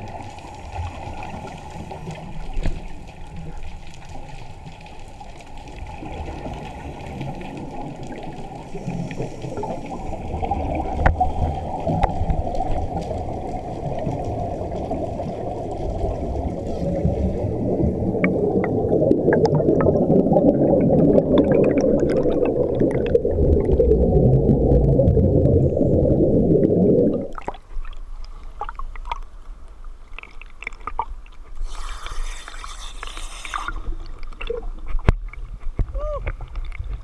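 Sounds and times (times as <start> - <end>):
water splashing hiss: 0.0 - 17.8, 31.6 - 34.2
underwater bubbling rumble: 0.0 - 31.5
quiet water sounds: 0.0 - 37.0.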